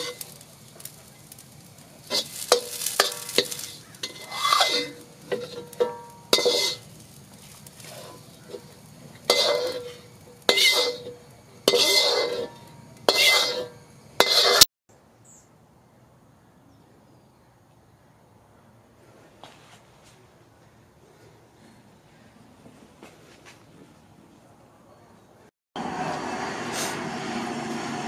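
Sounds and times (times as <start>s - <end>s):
metal ladle scraping a wok: 0.0s - 14.7s.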